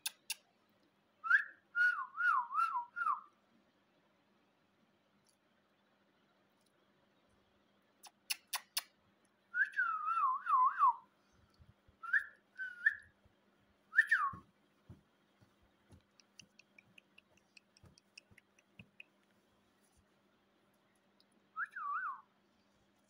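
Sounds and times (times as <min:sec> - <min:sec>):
sharp clicks: 0:00.0 - 0:00.5, 0:08.0 - 0:09.0, 0:15.4 - 0:19.3
short rising whistled chirps: 0:09.6 - 0:13.2, 0:13.9 - 0:14.5, 0:21.5 - 0:22.3
wavering whistle: 0:12.0 - 0:13.1, 0:13.9 - 0:14.4, 0:21.6 - 0:22.3.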